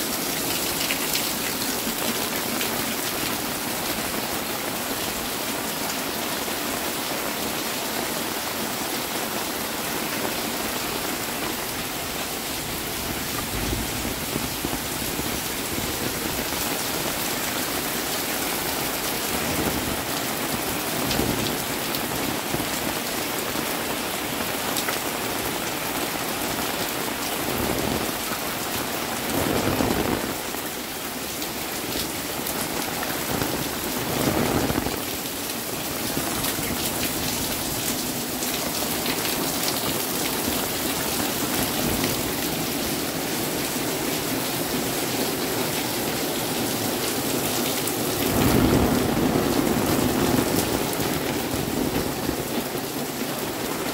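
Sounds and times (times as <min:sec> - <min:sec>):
heavy rain on roofs and concrete: 0:00.0 - 0:53.9
water dripping off roof: 0:00.1 - 0:04.2.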